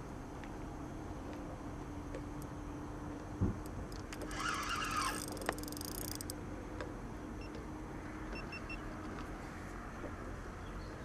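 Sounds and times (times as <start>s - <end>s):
steady low hum: 0.0s - 11.0s
fishing reel ticking: 4.1s - 6.4s.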